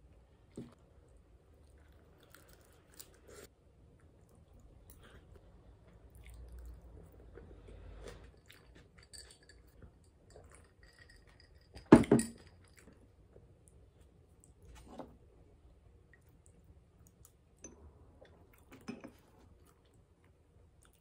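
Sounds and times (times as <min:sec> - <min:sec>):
quiet chewing: 0:01.5 - 0:10.8, 0:16.1 - 0:21.0.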